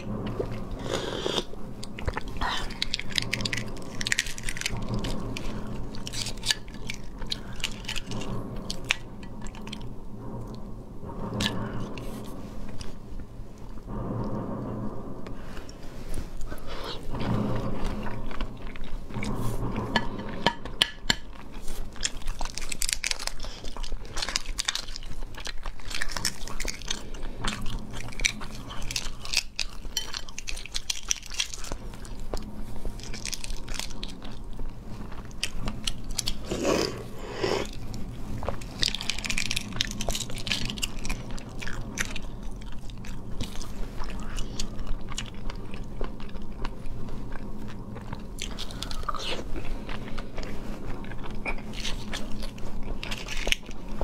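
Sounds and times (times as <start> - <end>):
eggshell crackling as peeled: 0.0 - 10.0, 20.8 - 54.0
biting and chewing: 0.0 - 12.9, 16.5 - 54.0.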